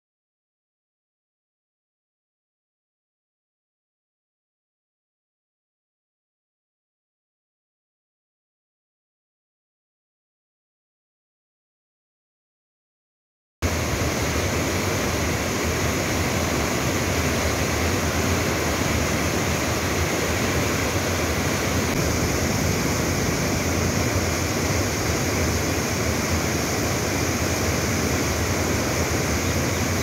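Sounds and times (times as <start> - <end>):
roar of turbulent water: 16.0 - 30.0.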